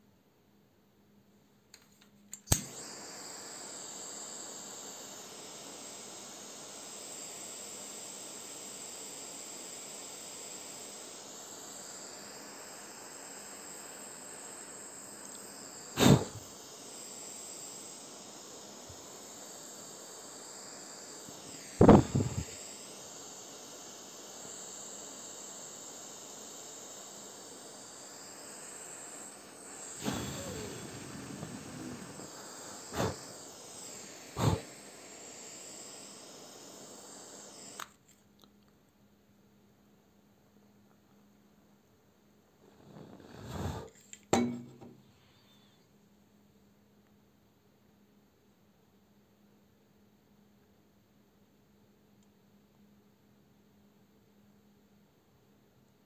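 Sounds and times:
gas torch flame hissing: 0:02.3 - 0:38.0, 0:42.5 - 0:45.8
loud rush of flame: 0:15.9 - 0:16.5, 0:21.7 - 0:22.6, 0:29.5 - 0:35.3, 0:42.6 - 0:43.9.

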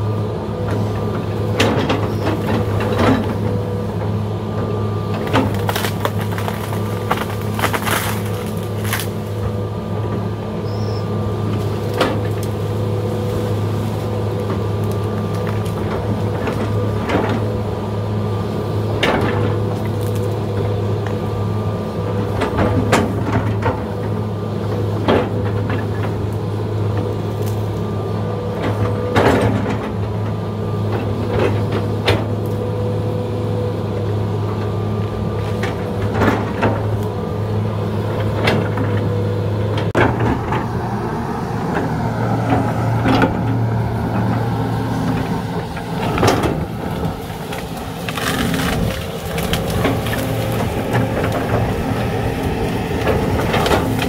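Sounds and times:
excavator diesel engine running: 0:00.0 - 0:54.0
machine knocks and clanks: 0:39.8 - 0:40.7.

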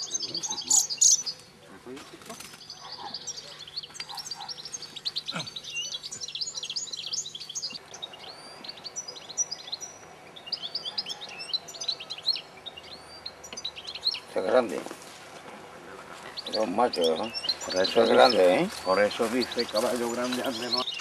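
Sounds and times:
finches twittering: 0:00.0 - 0:21.0.

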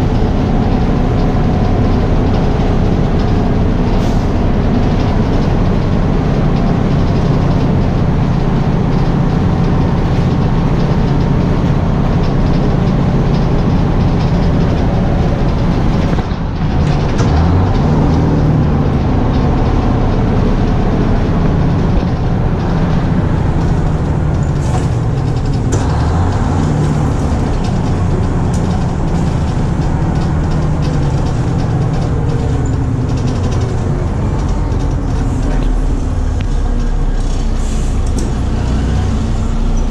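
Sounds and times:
bus engine running: 0:00.0 - 0:39.9
road noise: 0:00.0 - 0:39.9.

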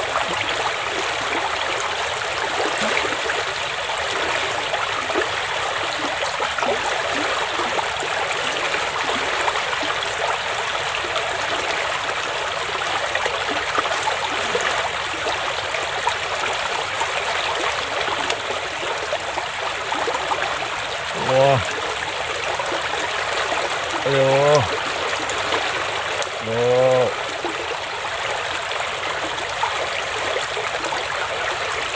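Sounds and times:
stream water gurgling: 0:00.0 - 0:31.9.

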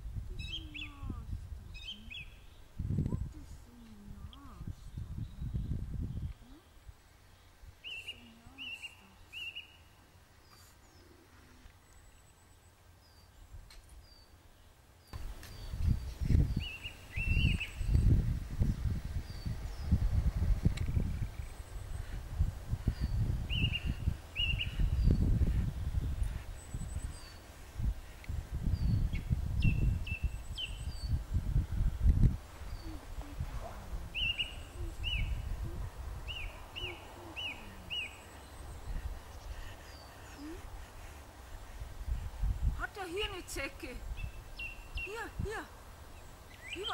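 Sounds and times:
wind buffeting microphone: 0:00.0 - 0:06.9, 0:15.1 - 0:46.9
meadow ambience: 0:00.0 - 0:46.9
songbirds chirping: 0:00.2 - 0:46.9
birds whistling: 0:07.8 - 0:11.0, 0:16.5 - 0:18.1, 0:22.9 - 0:25.3, 0:34.2 - 0:35.6, 0:36.2 - 0:40.4, 0:46.2 - 0:46.9.

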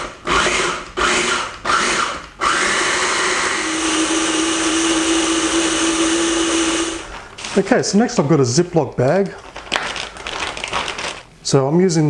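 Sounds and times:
food processor blending: 0:00.0 - 0:07.1.

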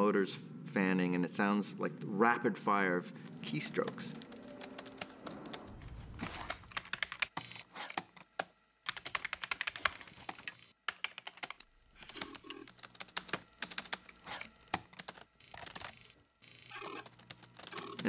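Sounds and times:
rapid keyboard typing: 0:03.6 - 0:18.0.

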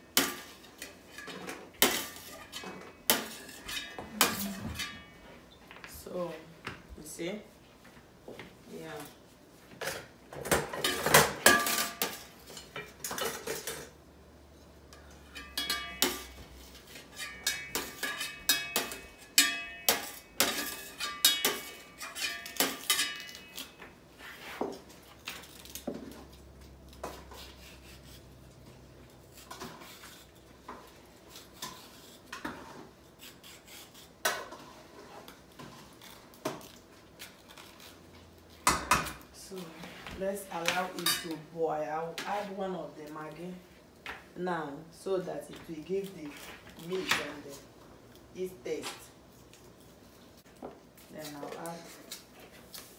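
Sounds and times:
metal spoon scraping a pot: 0:00.2 - 0:05.2, 0:15.0 - 0:24.7.

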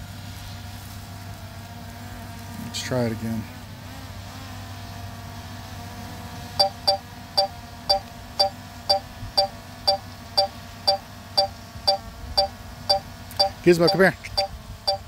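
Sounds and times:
short electronic beeps: 0:06.6 - 0:15.0.

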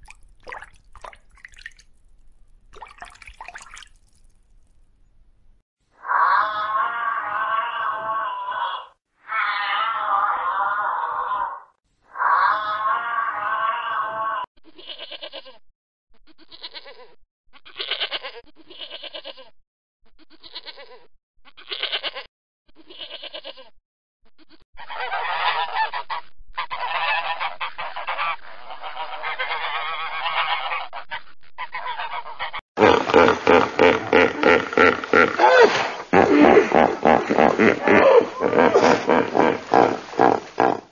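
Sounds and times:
animal calls: 0:06.0 - 0:14.4, 0:24.8 - 0:40.9.

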